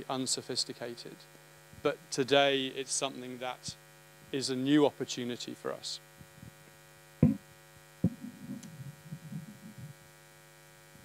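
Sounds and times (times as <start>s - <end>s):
electrical mains hum: 0.0s - 11.0s
faint low shuffling: 8.0s - 10.1s.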